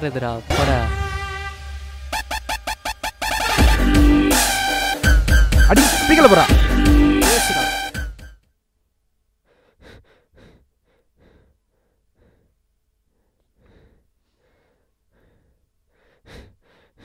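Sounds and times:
soft short breaths: 9.4 - 17.0.

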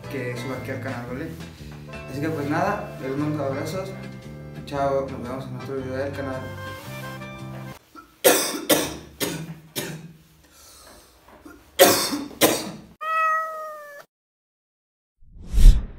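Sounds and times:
man coughing: 7.9 - 10.2, 11.4 - 12.9.

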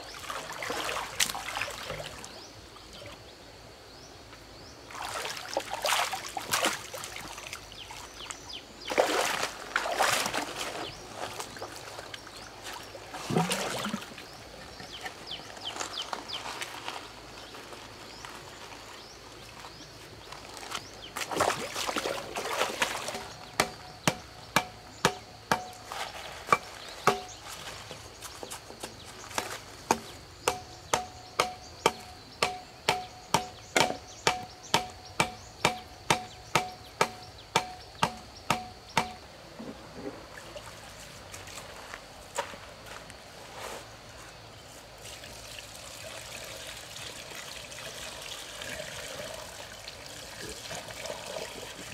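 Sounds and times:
rustling scraping noise: 25.7 - 30.2, 43.3 - 44.9
sharp ringing striking blows: 30.5 - 39.2.

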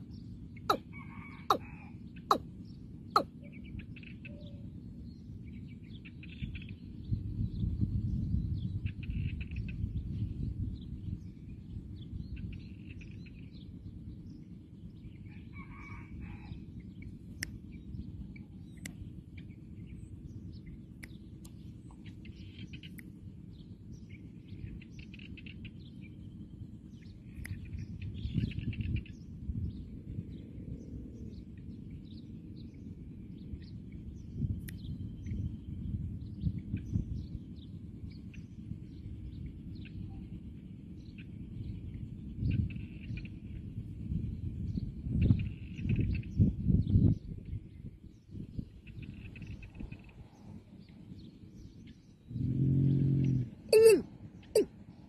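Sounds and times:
small birds chirping: 0.0 - 55.0
watercock calling: 53.7 - 54.7.

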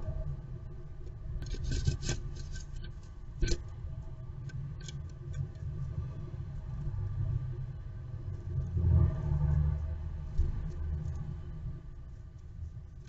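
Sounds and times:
steady low rumble: 0.0 - 13.0
bird claws scratching on wood: 1.4 - 3.6.

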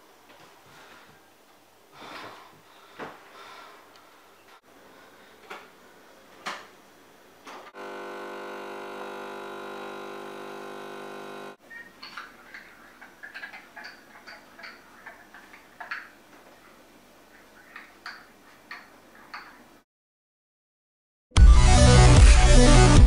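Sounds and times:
coffee machine pump buzzing: 7.8 - 11.6.

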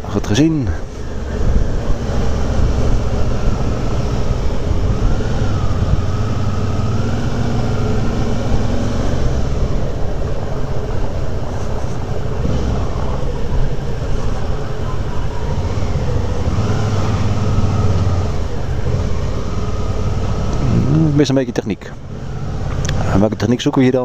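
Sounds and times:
loud rushing noise: 0.8 - 21.0.

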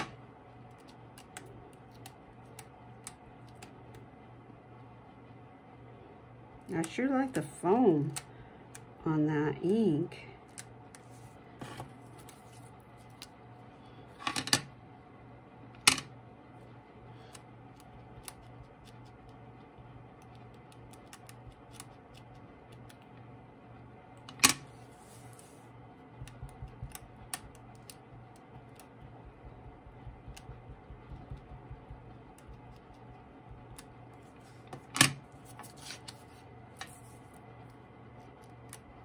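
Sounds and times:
low steady hum: 0.0 - 39.0
foam dauber tapping on paper: 26.1 - 33.8.

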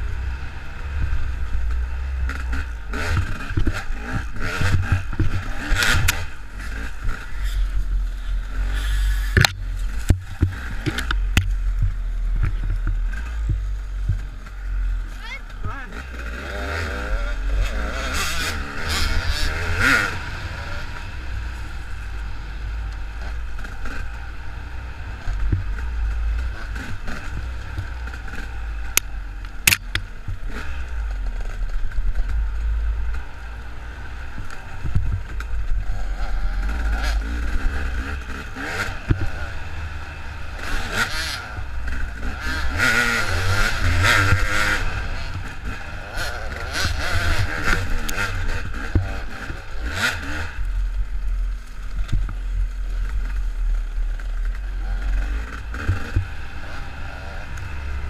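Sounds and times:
dirt bike engine revving: 0.0 - 58.0
wind rumbling on microphone: 16.5 - 40.6.

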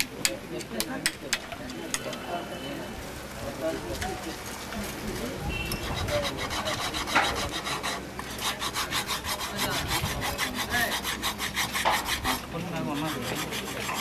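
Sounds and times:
hand tool scraping: 5.7 - 14.0.

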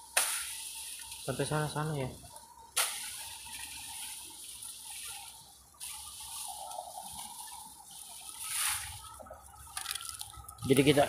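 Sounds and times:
dry grass rustling: 0.0 - 11.0.

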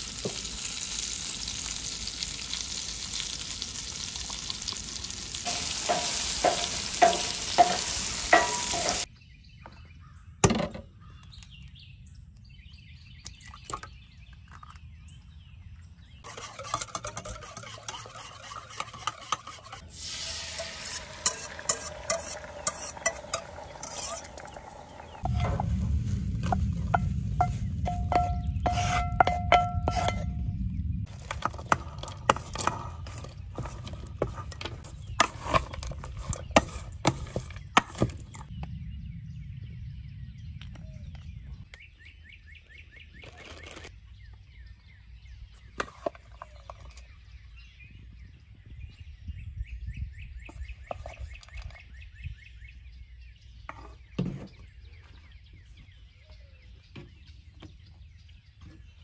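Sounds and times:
birds chirping with buzzy trill: 5.3 - 31.1, 32.1 - 59.0
wooden spatula knocking on pans: 5.5 - 9.1, 26.4 - 30.3
low rumble: 24.6 - 34.1, 38.4 - 41.7.

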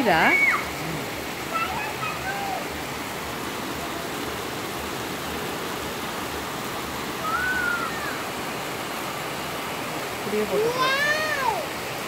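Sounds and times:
rain falling: 0.0 - 12.0
whistled call: 7.2 - 8.2.

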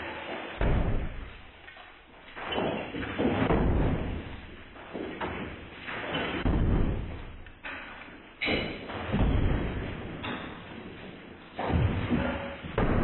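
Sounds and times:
hammer striking tiled wall: 6.0 - 7.2.

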